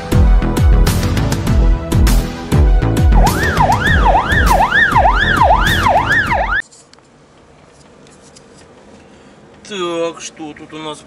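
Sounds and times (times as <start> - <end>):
electronic music with heavy kicks: 0.2 - 6.6
siren wailing: 3.1 - 6.6.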